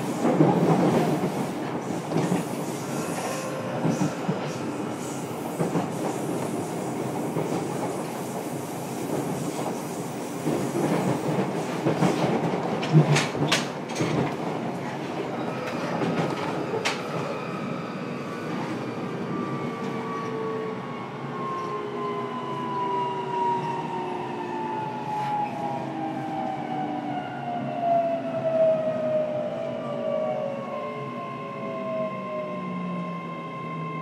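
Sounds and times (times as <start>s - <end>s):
wheels rumbling on rail: 0.0s - 20.4s
rail joint clacks: 10.4s - 17.3s.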